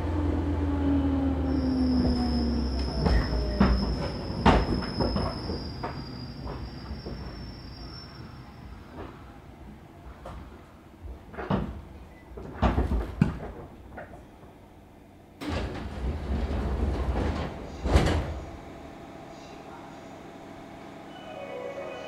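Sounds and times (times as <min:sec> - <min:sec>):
train doors sliding: 0:01.5 - 0:13.9, 0:15.4 - 0:18.8.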